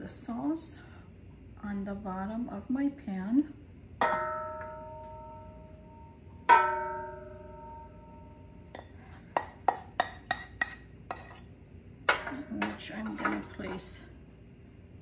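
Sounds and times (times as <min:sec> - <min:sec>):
enamelled pot knocking ringing: 0:04.0 - 0:10.8.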